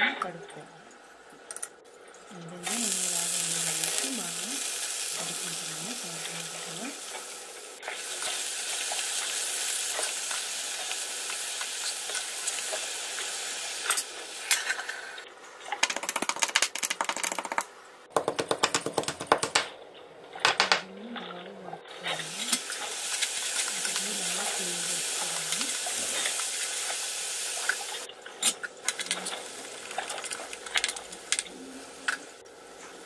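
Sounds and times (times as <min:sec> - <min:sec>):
pestle pounding in a mortar: 0:17.0 - 0:19.7
steady hiss: 0:22.2 - 0:28.1.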